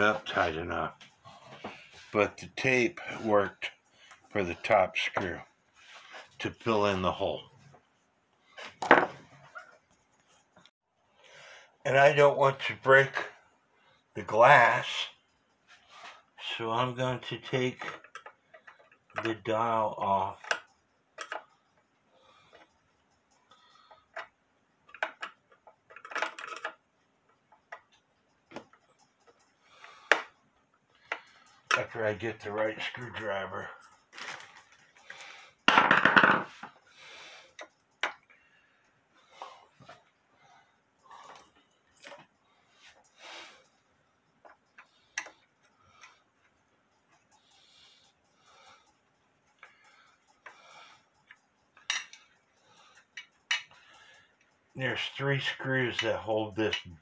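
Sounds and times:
screwdriver clicking and scraping: 0:20.4 - 0:21.8, 0:22.5 - 0:26.8, 0:44.4 - 0:47.4, 0:48.1 - 0:54.6.

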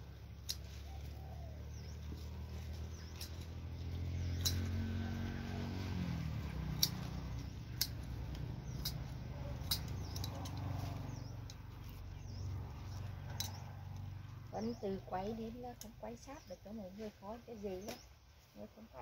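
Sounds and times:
low engine hum: 0:00.0 - 0:19.0
sharp snips of stems: 0:00.3 - 0:05.2, 0:06.2 - 0:14.1, 0:17.8 - 0:18.2.

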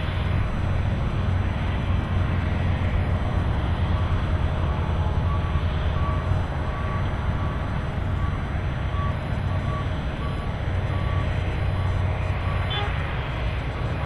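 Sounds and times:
heavy diesel machinery rumbling: 0:00.0 - 0:14.0
reversing beeper beeps: 0:05.1 - 0:12.9.

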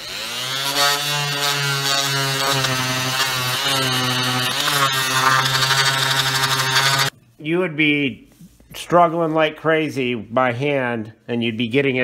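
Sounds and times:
oscillating multi-tool buzzing: 0:00.0 - 0:07.1.

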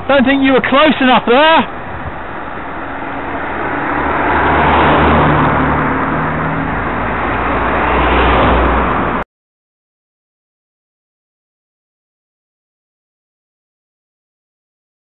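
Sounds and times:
car engines running: 0:00.0 - 0:09.2
tyre and road noise: 0:00.0 - 0:09.2.

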